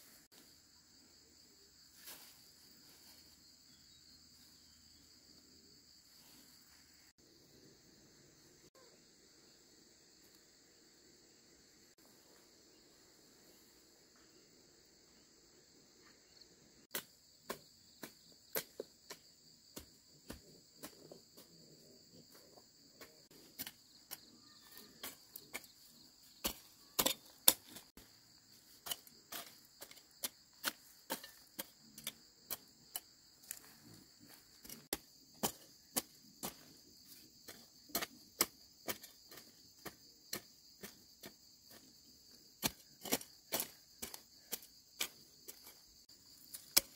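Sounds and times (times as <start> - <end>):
insects droning: 0.0 - 46.9
hoe chopping into soil: 16.9 - 21.5, 23.0 - 41.9, 42.6 - 45.8, 46.4 - 46.9.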